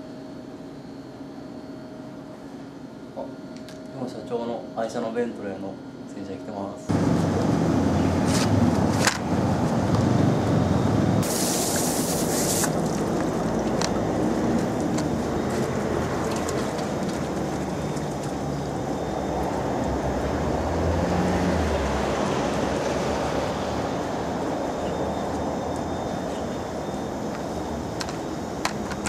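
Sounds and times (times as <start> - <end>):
low rumble of machinery: 0.0 - 11.3, 12.7 - 29.0
sharp hiss: 11.2 - 12.9.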